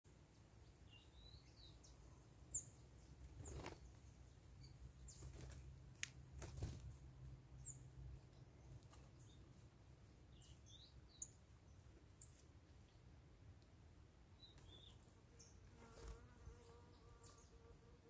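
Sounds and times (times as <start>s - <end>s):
songbirds chirping: 0.1s - 18.0s
wing flutters: 3.2s - 4.0s, 5.1s - 7.0s, 15.8s - 16.3s.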